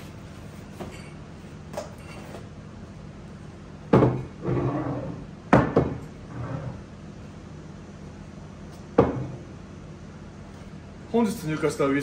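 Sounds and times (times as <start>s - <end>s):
glass bottles knocking on wooden counter: 3.9s - 4.3s, 5.5s - 6.0s.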